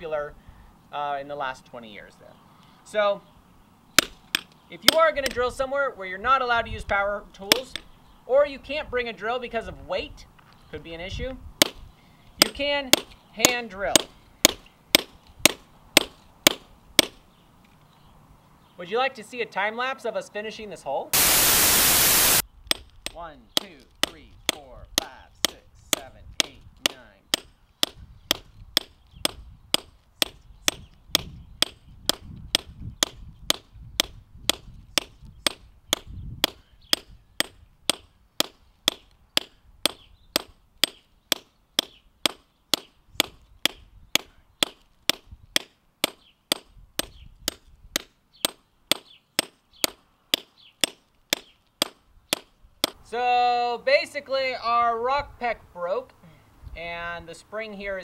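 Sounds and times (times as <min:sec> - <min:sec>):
hammer striking rock drill: 0:04.0 - 0:05.4, 0:12.4 - 0:17.2, 0:21.2 - 0:53.0
burst of hiss: 0:21.2 - 0:22.4.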